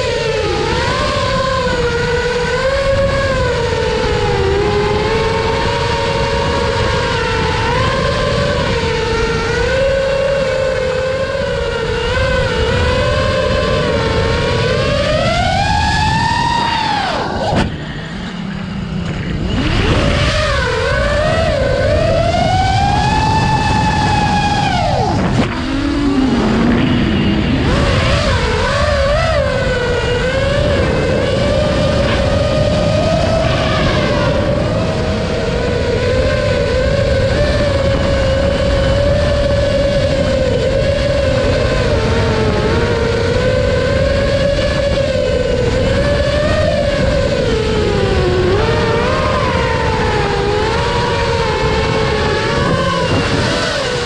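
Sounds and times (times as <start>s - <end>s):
quadcopter motors whining: 0.0s - 54.0s.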